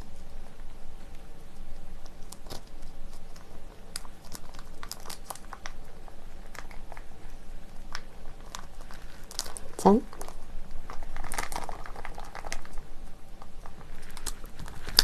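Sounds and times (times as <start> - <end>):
plastic sachet crinkling: 2.2 - 5.8, 7.9 - 15.0.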